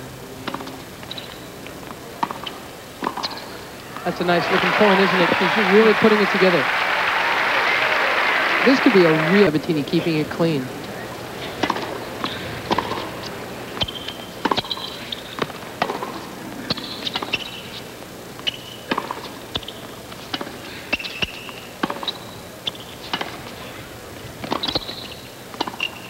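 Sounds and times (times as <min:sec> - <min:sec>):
tennis ball struck by rackets: 0:00.4 - 0:04.0, 0:11.2 - 0:17.7, 0:18.4 - 0:23.6, 0:24.4 - 0:26.0
shoe squeaks: 0:00.6 - 0:01.5, 0:02.4 - 0:04.0, 0:11.4 - 0:15.4, 0:16.7 - 0:19.0, 0:19.6 - 0:23.8, 0:24.5 - 0:26.0.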